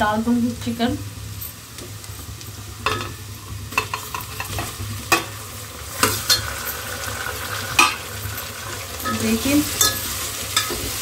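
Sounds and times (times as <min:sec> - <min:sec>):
chicken sizzling in hot oil: 0:00.0 - 0:11.0
ladle clinking against pot: 0:07.8 - 0:08.1, 0:09.0 - 0:11.0.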